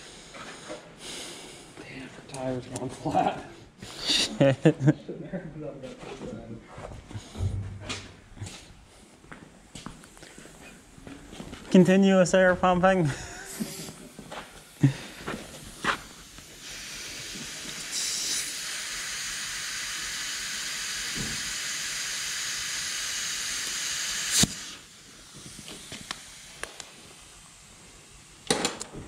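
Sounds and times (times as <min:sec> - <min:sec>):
compressed air hissing: 0:03.7 - 0:04.4, 0:13.0 - 0:28.6.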